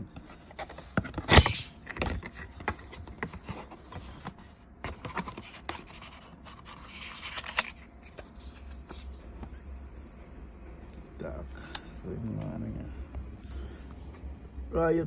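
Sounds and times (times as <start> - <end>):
cardboard rustling: 0.2 - 9.2.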